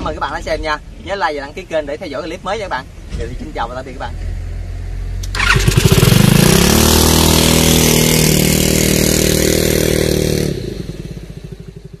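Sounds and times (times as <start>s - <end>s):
small boat engine revving: 4.5s - 11.4s.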